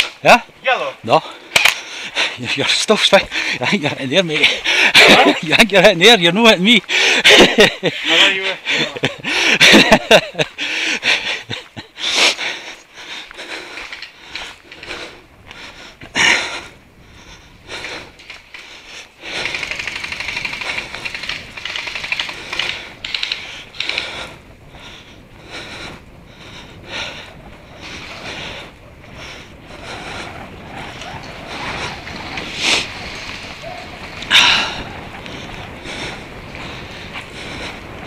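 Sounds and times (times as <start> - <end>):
rapid even clicking: 18.2 - 24.4.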